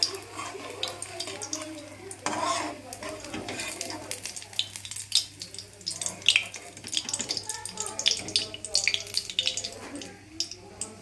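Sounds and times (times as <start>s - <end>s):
steel spatula scraping a pan: 0.0s - 4.1s
batter frying in hot oil: 0.0s - 11.0s.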